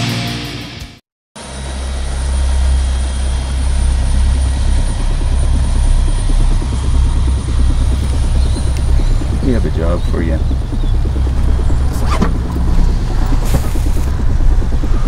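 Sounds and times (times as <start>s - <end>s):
rock music: 0.0s - 1.0s
deep engine drone: 1.4s - 15.0s.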